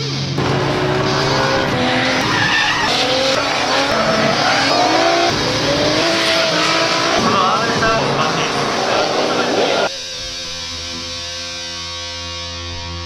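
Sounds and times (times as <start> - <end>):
car engines revving high: 0.0 - 11.3
tyres screeching: 0.4 - 9.9.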